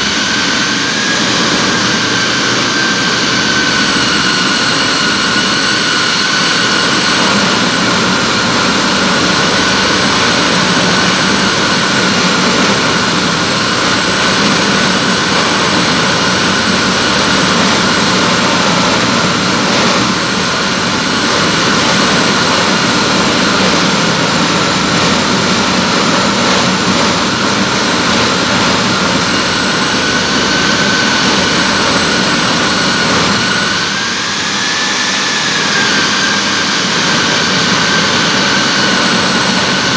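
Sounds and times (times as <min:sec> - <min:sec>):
core drill motor whining: 0:00.0 - 0:39.9
drill grinding concrete: 0:00.0 - 0:39.9.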